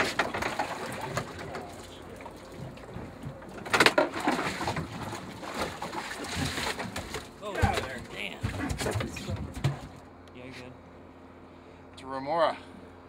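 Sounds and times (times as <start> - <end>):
fish slapping wet deck: 0.0 - 10.0.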